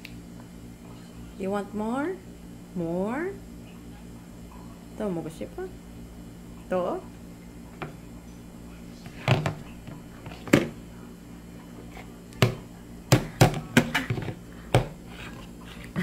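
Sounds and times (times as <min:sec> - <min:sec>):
bowl knocking on plastic tray: 0:09.2 - 0:09.6, 0:12.4 - 0:14.9.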